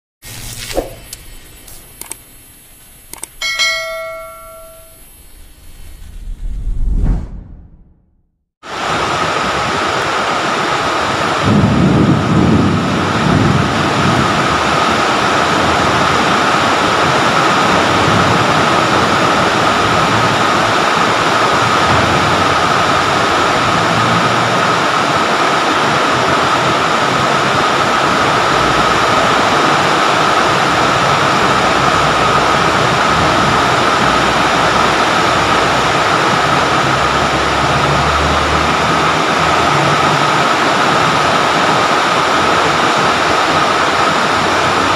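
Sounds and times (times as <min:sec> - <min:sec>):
short low rumble: 0:05.2 - 0:08.3.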